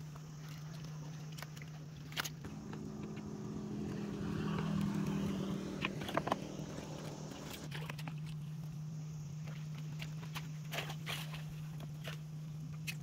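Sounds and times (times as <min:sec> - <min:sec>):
small engine running: 0:02.4 - 0:07.8.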